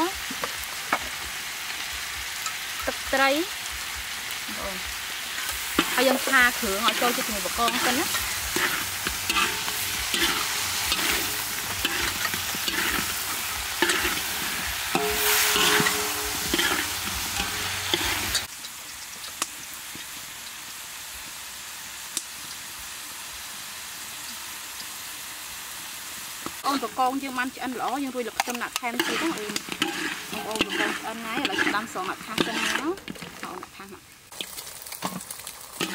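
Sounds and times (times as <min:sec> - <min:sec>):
oil sizzling: 0:00.0 - 0:35.9
metal spatula scraping in wok: 0:05.2 - 0:18.5, 0:27.7 - 0:35.9.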